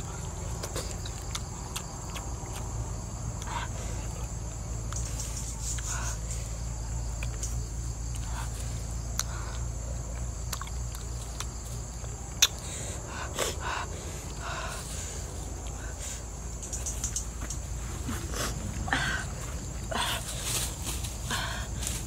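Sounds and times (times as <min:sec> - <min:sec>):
insects droning: 0:00.0 - 0:22.0
person chewing: 0:00.2 - 0:03.5, 0:09.1 - 0:12.6.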